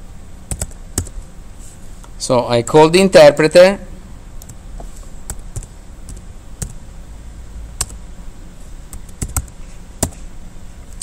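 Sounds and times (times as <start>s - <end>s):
low steady hum: 0.0s - 11.0s
computer keyboard keystrokes: 0.5s - 1.2s, 8.9s - 10.2s.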